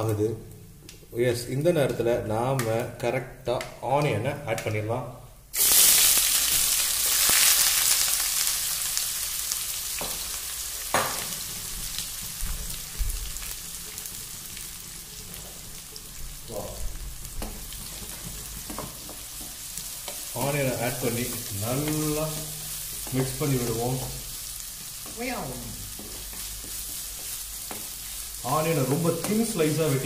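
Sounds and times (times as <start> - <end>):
onions sizzling in a pan: 5.5 - 30.0
wooden spatula knocking pan: 21.3 - 23.4, 25.9 - 28.1.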